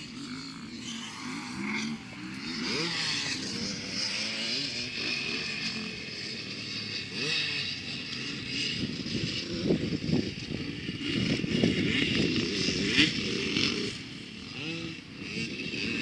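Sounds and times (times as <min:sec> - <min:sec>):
motocross bike engines revving: 0:00.0 - 0:16.0.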